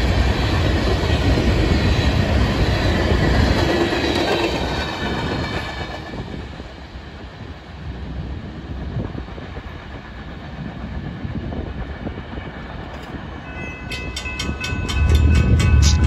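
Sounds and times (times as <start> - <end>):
freight train rumbling: 0.0 - 16.0
crossing bell dinging: 13.4 - 16.0
loud low rumble: 15.0 - 16.0.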